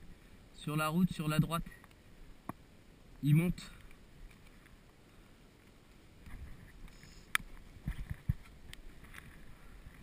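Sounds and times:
soft rustling: 0:03.7 - 0:10.0.

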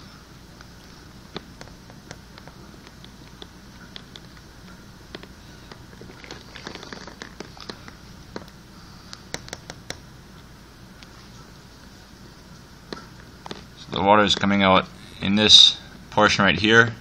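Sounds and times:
low steady hum: 0:00.0 - 0:17.0
small ticks and clicks: 0:00.6 - 0:10.0.

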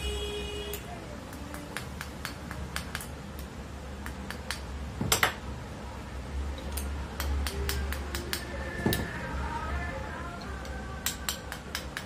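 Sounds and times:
low steady hum: 0:00.0 - 0:12.0
metal tools clicking and tapping: 0:00.7 - 0:05.4, 0:06.6 - 0:09.1, 0:10.4 - 0:12.0.

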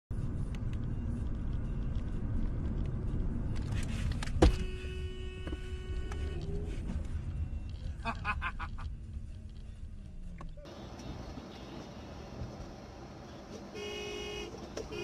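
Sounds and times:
car engine and road rumble: 0:00.1 - 0:15.0
car horn: 0:04.3 - 0:06.7, 0:13.7 - 0:15.0.

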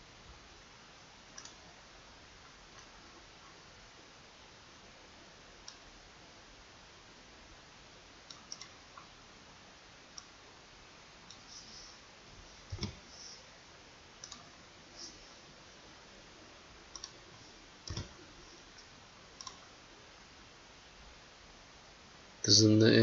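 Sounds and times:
faint steady hiss: 0:00.0 - 0:23.0
computer mouse clicks: 0:01.3 - 0:01.6, 0:08.3 - 0:09.1, 0:12.6 - 0:13.4, 0:14.2 - 0:15.2, 0:16.9 - 0:17.2, 0:17.8 - 0:18.2, 0:18.8 - 0:19.7.

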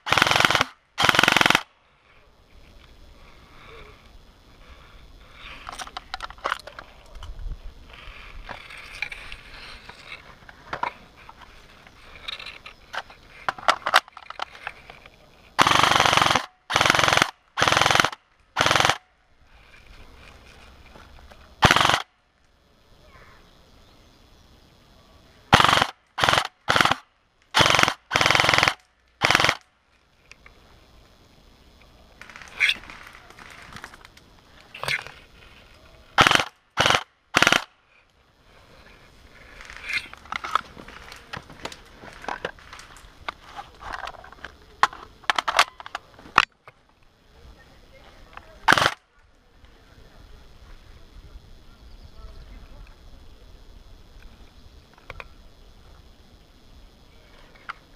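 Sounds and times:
airsoft rifles firing bursts: 0:00.0 - 0:01.7, 0:15.6 - 0:19.0, 0:21.6 - 0:22.1, 0:25.5 - 0:27.0, 0:27.6 - 0:29.6, 0:36.2 - 0:37.7, 0:48.6 - 0:49.0
rustling: 0:32.2 - 0:36.0, 0:38.5 - 0:45.0.

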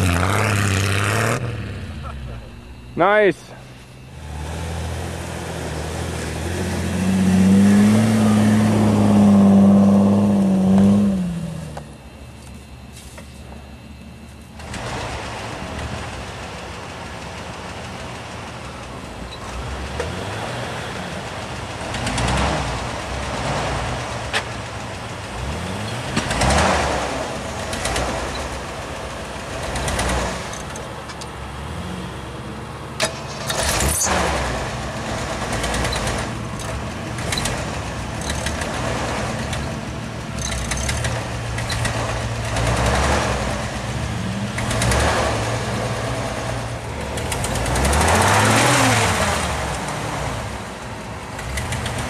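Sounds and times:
rushing noise: 0:00.0 - 0:11.5
truck engine revving: 0:00.0 - 0:12.2, 0:14.6 - 0:52.0.

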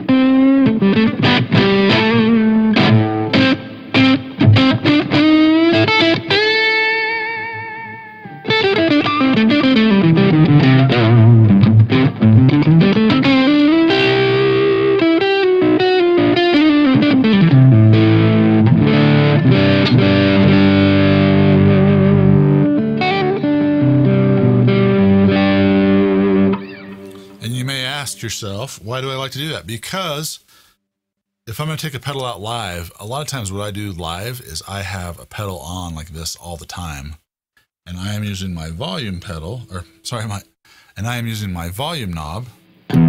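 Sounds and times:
distorted electric guitar: 0:00.0 - 0:27.4, 0:42.6 - 0:43.0.

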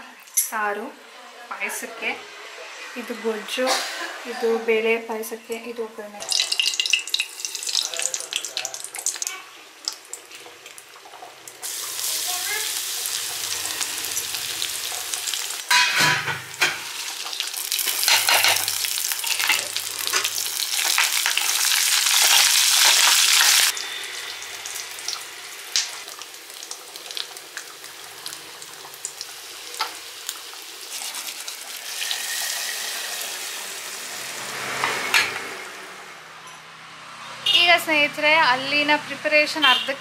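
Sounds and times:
hot oil sizzling in a pan: 0:06.2 - 0:35.8.

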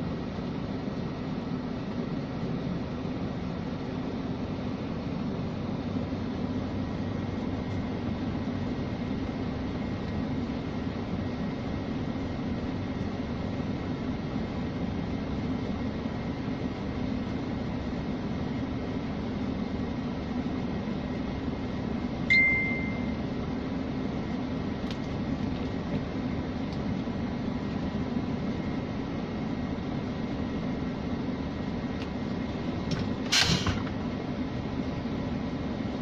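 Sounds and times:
short steady beep: 0:22.3 - 0:23.2.

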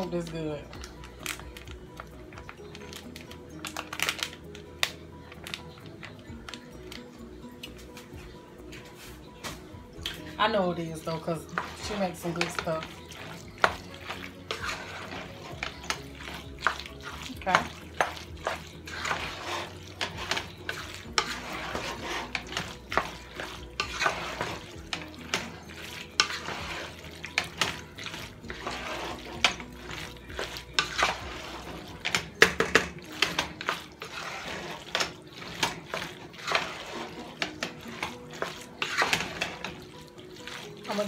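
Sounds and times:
pasta squelching: 0:00.0 - 0:41.0
spoon knocking and scraping pot: 0:11.4 - 0:41.0.

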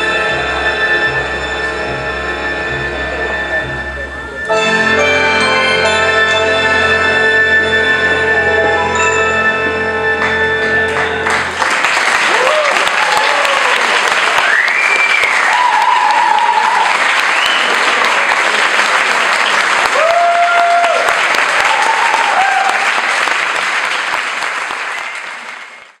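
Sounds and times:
audience applauding: 0:10.2 - 0:26.0.

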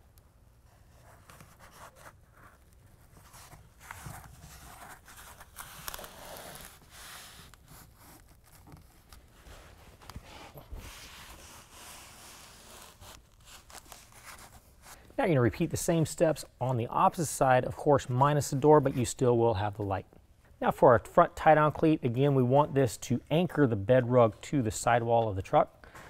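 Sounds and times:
carpet rustling and scraping: 0:00.6 - 0:15.0.

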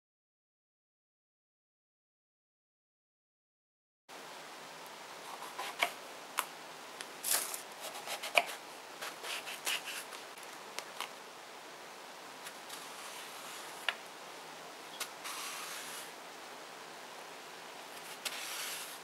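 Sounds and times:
knife slicing eggplant: 0:07.8 - 0:10.1.

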